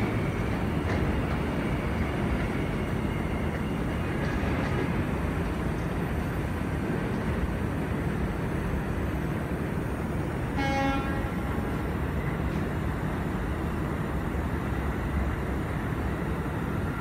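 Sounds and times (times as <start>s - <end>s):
subway train rumbling: 0.0s - 17.0s
train horn toot: 10.5s - 11.7s.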